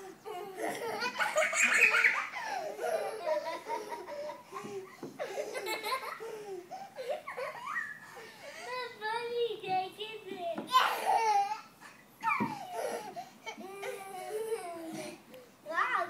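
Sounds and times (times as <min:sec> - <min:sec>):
young children laughing: 0:00.0 - 0:09.0.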